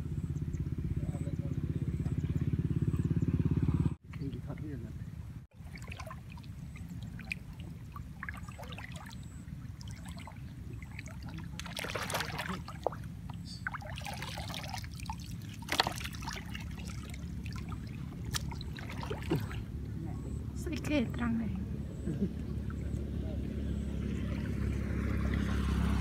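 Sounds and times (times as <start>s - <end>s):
water sloshing and splashing: 5.5s - 21.4s, 22.3s - 26.0s.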